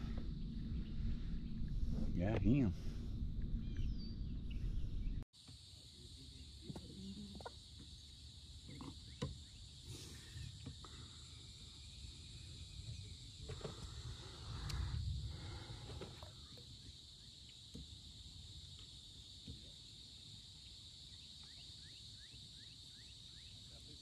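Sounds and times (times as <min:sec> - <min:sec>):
handling and wind rumble: 0:00.0 - 0:05.2
open-water hiss: 0:05.4 - 0:22.8.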